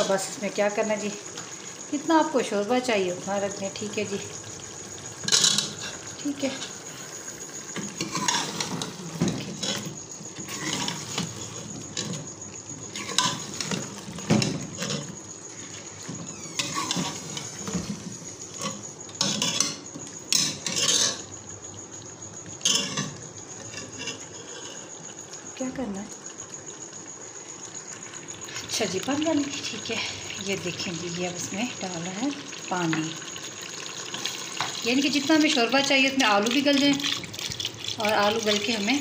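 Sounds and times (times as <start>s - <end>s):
light sizzle of frying: 0.0s - 39.0s
steel spoon scraping a pot: 5.2s - 6.8s, 7.8s - 12.2s, 18.5s - 21.3s, 22.6s - 24.9s.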